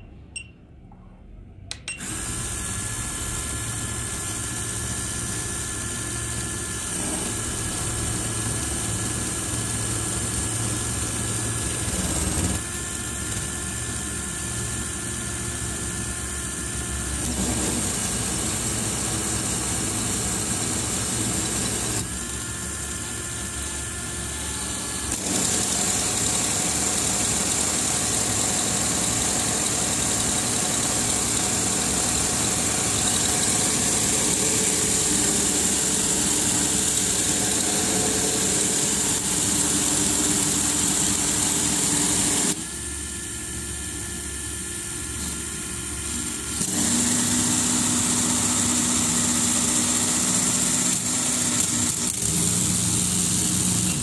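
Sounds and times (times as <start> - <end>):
model engine gears whirring: 2.0 - 15.3, 16.2 - 42.6, 46.4 - 54.0
electric motor whirring: 2.0 - 54.0.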